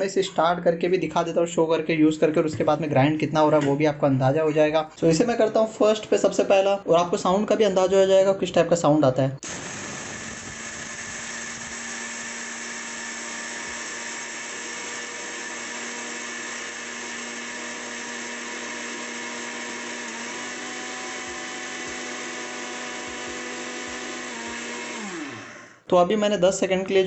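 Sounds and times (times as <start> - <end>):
mixer grinder grinding rice: 9.4 - 25.9.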